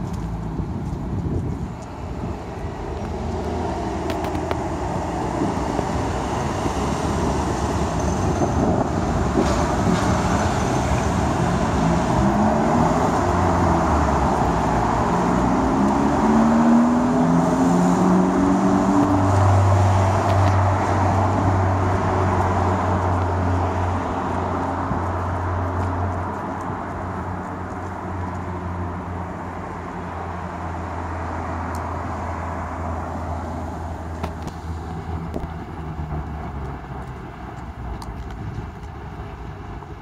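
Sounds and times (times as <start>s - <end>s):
street traffic noise: 0.0s - 40.0s
engine revving through gears: 9.3s - 21.5s.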